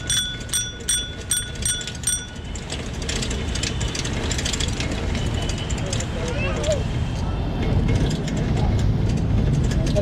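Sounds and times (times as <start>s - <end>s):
bicycle bell ringing: 0.0s - 2.8s
bike rattling rolling along: 0.0s - 10.0s
road rumble: 0.0s - 10.0s
wind: 0.0s - 10.0s.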